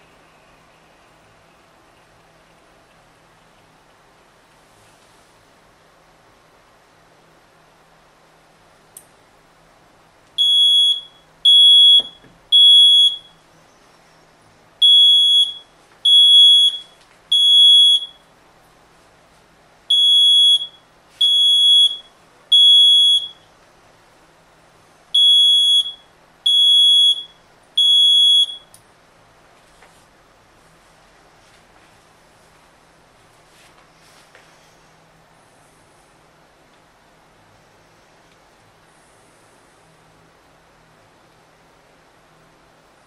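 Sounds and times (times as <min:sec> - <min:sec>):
smoke alarm beeping: 0:10.4 - 0:13.4, 0:14.8 - 0:18.3, 0:19.9 - 0:23.5, 0:25.1 - 0:28.8.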